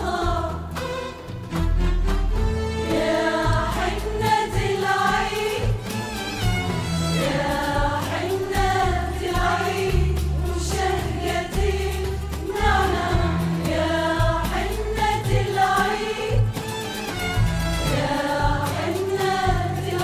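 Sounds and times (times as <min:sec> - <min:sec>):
women's choir singing: 0:00.0 - 0:00.8, 0:02.8 - 0:16.7, 0:17.8 - 0:20.0
frame drums beating: 0:00.0 - 0:01.6, 0:02.2 - 0:20.0
violins playing: 0:05.8 - 0:07.6, 0:16.6 - 0:18.1.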